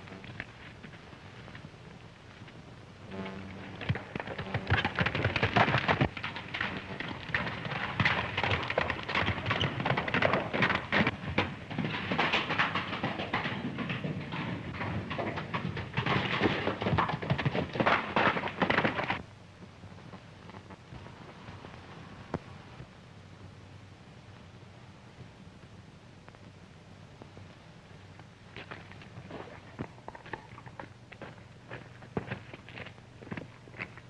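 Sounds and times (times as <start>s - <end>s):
galloping horse hoofbeats: 3.5s - 22.9s, 27.2s - 34.0s.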